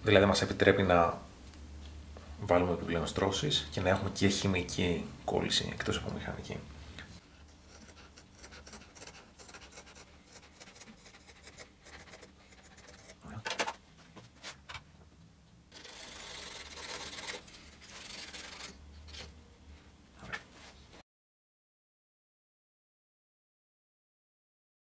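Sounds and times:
rubbing and scraping on laminate: 7.4s - 13.2s, 15.8s - 19.3s.

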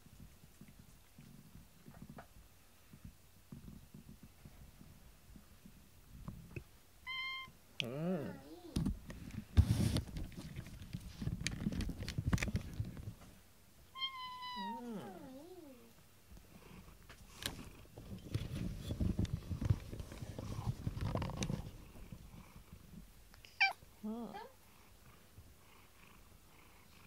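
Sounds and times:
knocks and rustles on microphone: 1.2s - 6.6s, 8.8s - 13.4s, 17.1s - 23.1s
cat meowing: 7.0s - 7.5s, 14.0s - 15.9s, 23.5s - 24.5s
cat purring: 7.8s - 8.8s, 14.4s - 27.0s.

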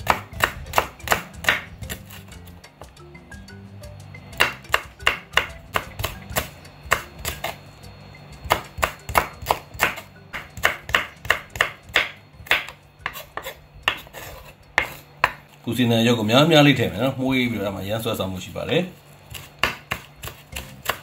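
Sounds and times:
knife chopping on wooden board: 0.0s - 2.3s, 4.4s - 7.6s, 8.4s - 15.4s, 19.3s - 21.0s
quiet background music: 0.0s - 21.0s.

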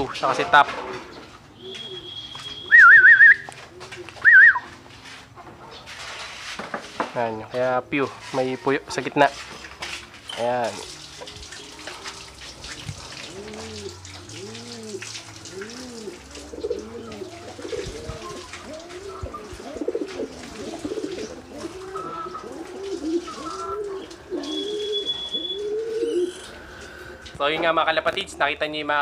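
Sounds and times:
pigeons cooing: 0.0s - 4.8s, 11.5s - 27.4s.

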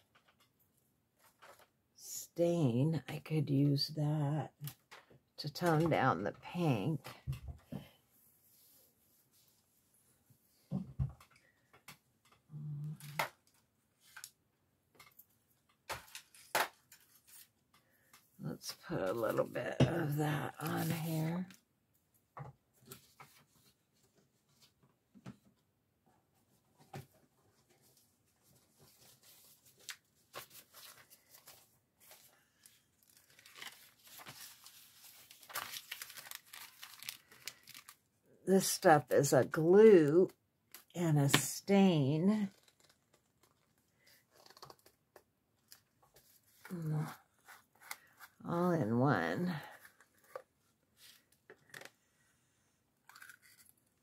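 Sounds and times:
paper rustling: 27.6s - 38.0s.

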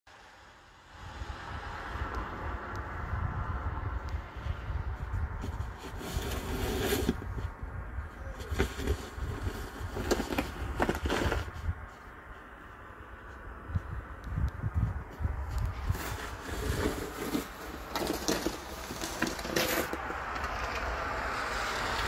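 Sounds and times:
low rumble: 0.2s - 5.8s
snow shovel scraping: 5.5s - 7.3s, 8.4s - 11.6s, 15.8s - 20.7s.

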